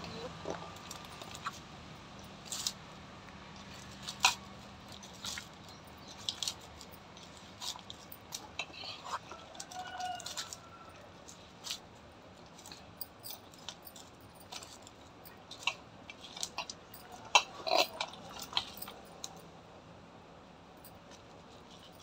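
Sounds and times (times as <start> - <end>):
bangles and fingers clicking on steel: 3.6 - 19.5.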